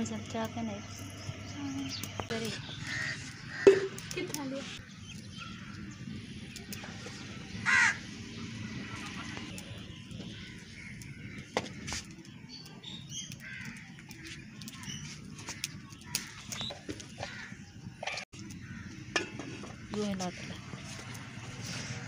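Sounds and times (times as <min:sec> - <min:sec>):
crows cawing: 0:02.6 - 0:04.4, 0:07.6 - 0:09.6, 0:10.3 - 0:12.1, 0:13.4 - 0:17.6, 0:18.4 - 0:20.6.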